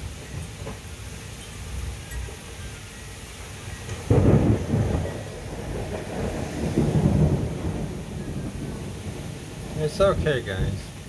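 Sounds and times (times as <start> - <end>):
steady rain: 0.0 - 11.0
thunder clap and rumble: 3.8 - 11.0.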